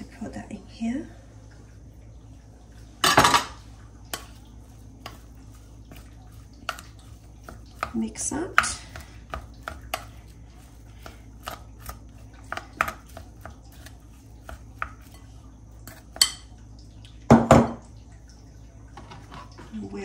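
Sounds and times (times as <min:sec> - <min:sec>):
glass bowl clattering on counter: 0:03.0 - 0:03.6.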